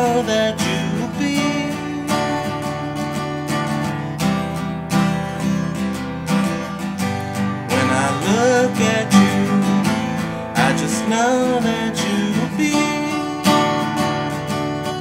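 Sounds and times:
person singing: 0:00.0 - 0:03.0, 0:07.7 - 0:14.0
acoustic guitar strumming: 0:00.0 - 0:15.0.

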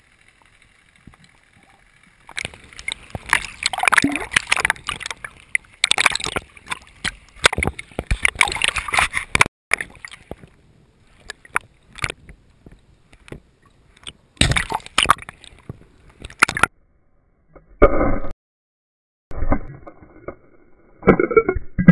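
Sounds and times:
water rushing: 0:00.0 - 0:10.5
water sloshing and gurgling: 0:00.0 - 0:16.7.

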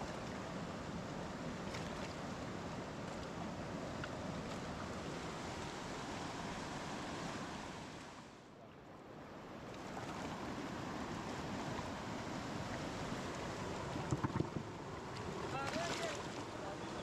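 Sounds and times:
fast-flowing river rushing: 0:02.3 - 0:08.3, 0:14.7 - 0:17.0.

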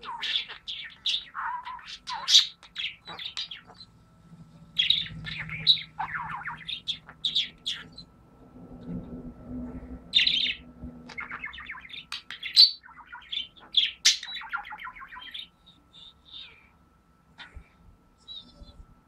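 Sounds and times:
budgerigar chirping and warbling: 0:00.0 - 0:03.9, 0:04.7 - 0:08.1, 0:10.1 - 0:16.7.

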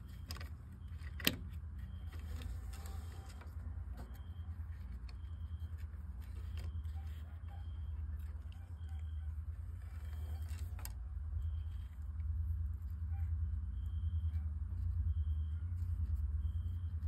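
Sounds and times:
ticks and rustles of cord and sticks: 0:00.0 - 0:12.3
steady low hum: 0:00.0 - 0:17.0.

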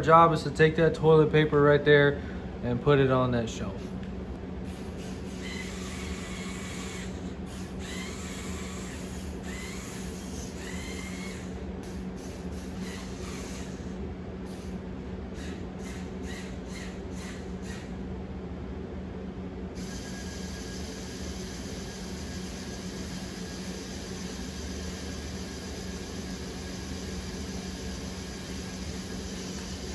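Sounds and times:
small electric motors whining: 0:04.7 - 0:14.7, 0:15.4 - 0:17.9, 0:19.8 - 0:29.9.

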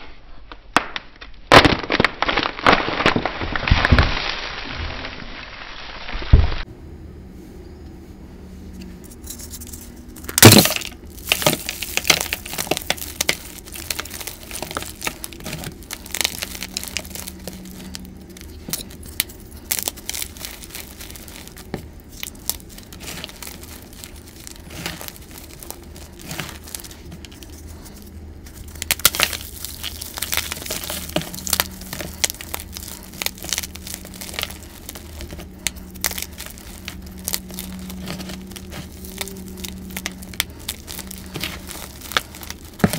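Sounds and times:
chalk crunching and crumbling: 0:09.0 - 0:42.9
chalk block cracking: 0:10.2 - 0:42.9.

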